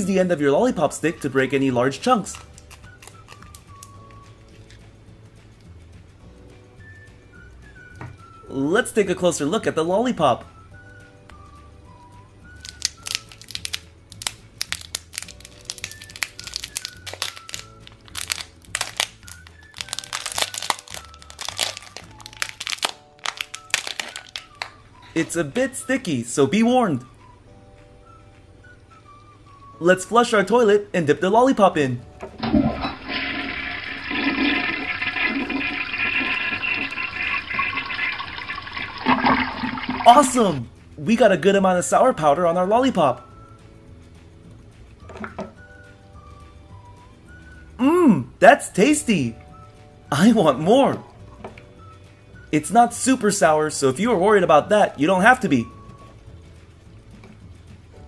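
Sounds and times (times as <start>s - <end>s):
plastic wrapper crinkling: 2.3s - 3.9s, 12.6s - 24.8s
toilet flush sound effect: 32.4s - 40.5s.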